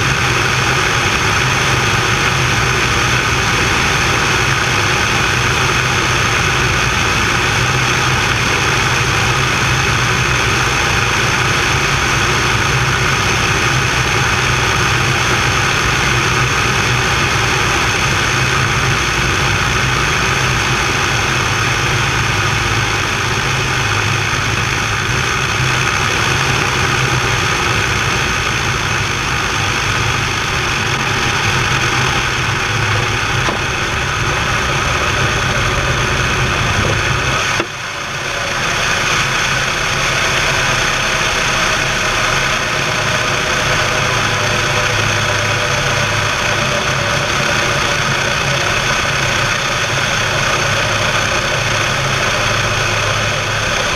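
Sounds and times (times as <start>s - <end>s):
propeller aircraft engine drone: 0.0s - 53.9s
rushing airflow: 0.0s - 53.9s.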